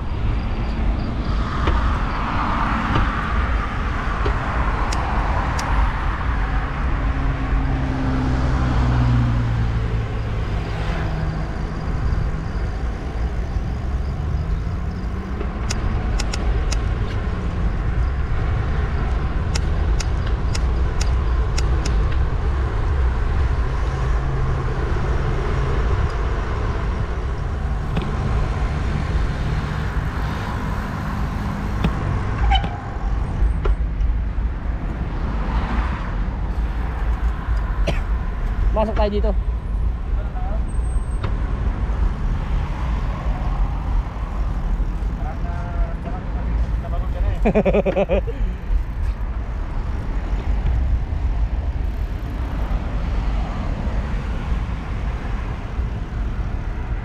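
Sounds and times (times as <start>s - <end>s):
steady low traffic rumble: 0.0s - 57.0s
vehicles passing: 0.0s - 57.0s
sharp clicks: 15.0s - 17.2s, 19.1s - 22.2s.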